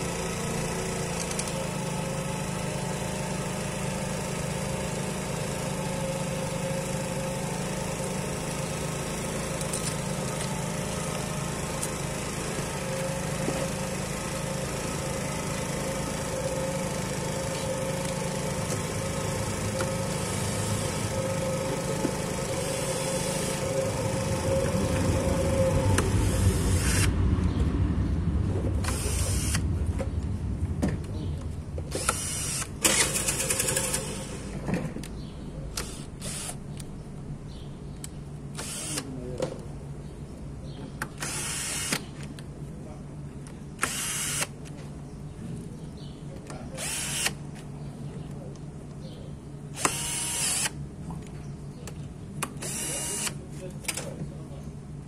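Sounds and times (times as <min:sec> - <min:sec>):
steady motor hum: 0:00.0 - 0:55.0
cordless drill in short bursts: 0:15.9 - 0:24.2, 0:28.8 - 0:29.6, 0:31.9 - 0:34.5, 0:35.8 - 0:36.6, 0:38.5 - 0:39.2, 0:41.2 - 0:42.1, 0:43.8 - 0:44.6, 0:46.8 - 0:47.4, 0:49.7 - 0:50.8, 0:52.6 - 0:53.4.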